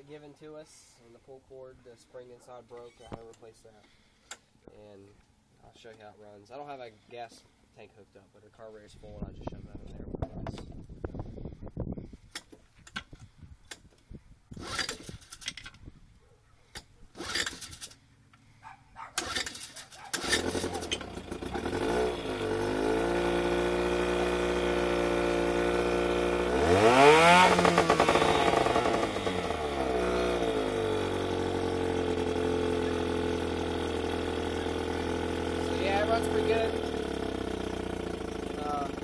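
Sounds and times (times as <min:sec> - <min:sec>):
outboard motor starting and running: 0:17.1 - 0:18.0, 0:18.6 - 0:39.0.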